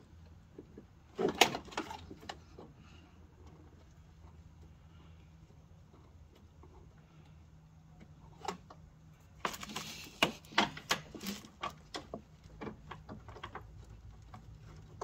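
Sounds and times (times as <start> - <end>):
small irregular clicks and taps: 8.0 - 15.0.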